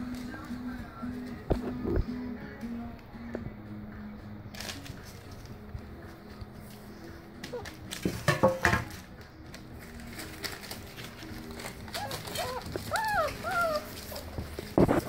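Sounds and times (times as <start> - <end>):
rustling: 4.5 - 15.0
puppies whimpering: 11.6 - 15.0.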